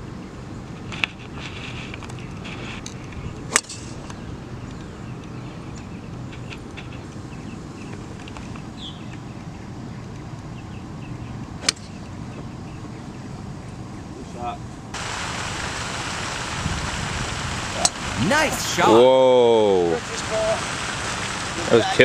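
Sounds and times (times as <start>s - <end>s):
outdoor background noise: 0.0s - 22.0s.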